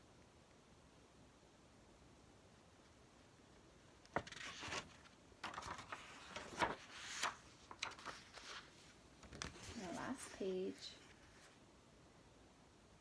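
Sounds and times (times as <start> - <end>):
paper pages rustling: 4.1 - 11.6.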